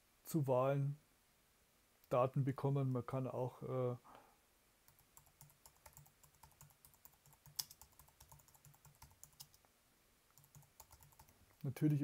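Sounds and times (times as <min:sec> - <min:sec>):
keyboard typing: 0:04.9 - 0:09.6, 0:10.4 - 0:12.0.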